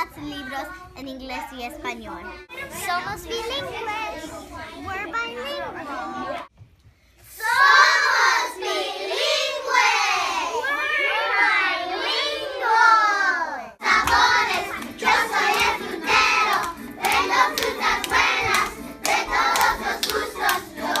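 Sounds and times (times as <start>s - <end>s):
children shouting: 7.4s - 15.7s
children singing together: 7.4s - 21.0s
hand claps: 13.9s - 21.0s.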